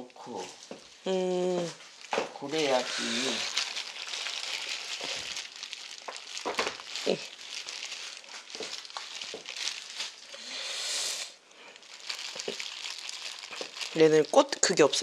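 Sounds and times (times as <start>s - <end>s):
plastic gloves crinkling: 0.0s - 10.5s, 11.2s - 15.0s
wet radishes squelching: 1.6s - 10.4s, 11.8s - 15.0s.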